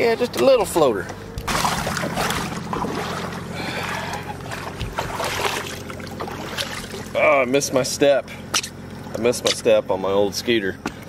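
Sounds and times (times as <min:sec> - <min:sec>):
water splashing around boat: 0:00.0 - 0:07.9
truck engine idling: 0:00.0 - 0:11.0.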